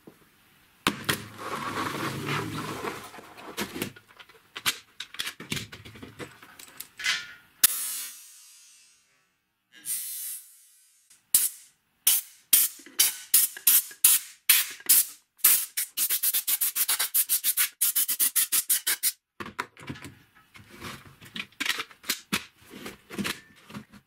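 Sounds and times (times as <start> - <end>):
plastic parts knocking and clicking: 3.6 - 7.3, 19.4 - 24.0
compressed air blasts: 7.6 - 9.2, 9.8 - 19.2.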